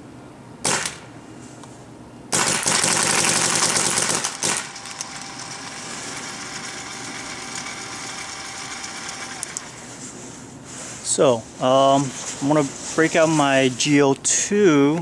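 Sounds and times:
steady hum: 0.0s - 15.0s
paintball marker firing: 0.7s - 1.1s, 2.3s - 5.1s.

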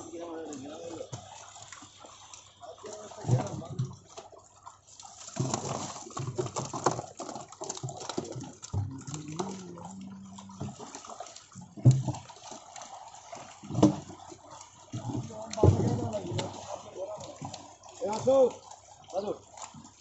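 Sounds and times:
fish thrashing in water: 0.0s - 20.0s
people wading through water: 0.0s - 20.0s
loud sharp splashes: 15.2s - 19.7s.

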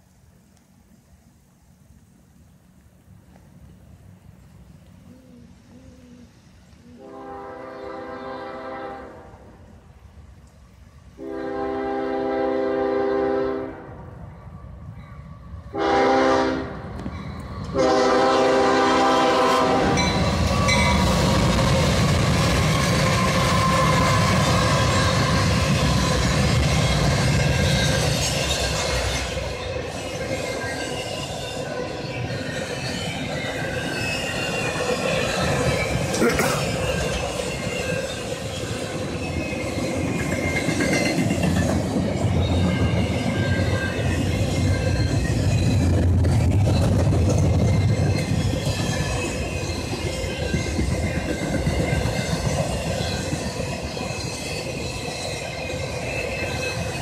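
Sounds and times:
diesel locomotive engine rumble: 0.0s - 57.0s
train air horn blasts: 6.9s - 9.6s, 11.2s - 14.0s, 15.7s - 16.9s, 17.7s - 20.8s
steel wheels rolling on rails: 16.8s - 57.0s.

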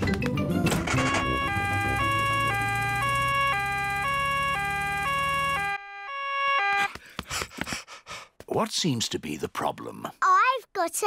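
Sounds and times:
two-tone ambulance siren: 0.8s - 7.0s.

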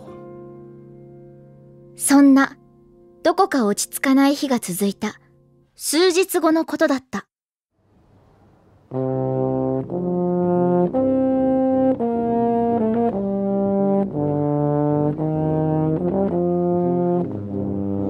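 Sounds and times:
brass ensemble playing chords: 8.9s - 18.0s.

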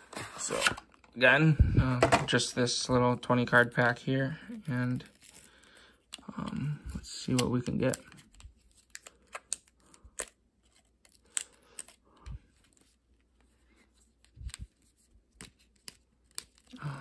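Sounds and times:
wrapper crinkling and tearing: 4.6s - 12.0s.

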